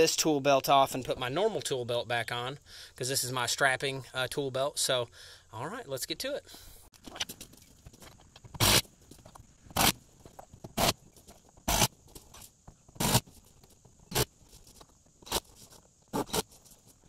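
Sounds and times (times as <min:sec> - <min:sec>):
conduit rasping scrapes: 0:10.8 - 0:17.0.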